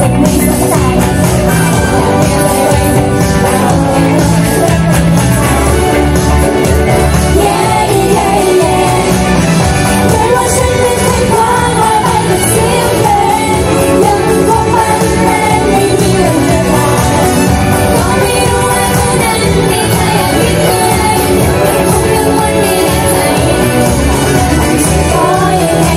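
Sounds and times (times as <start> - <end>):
pop music with women singing: 0.0 - 25.9.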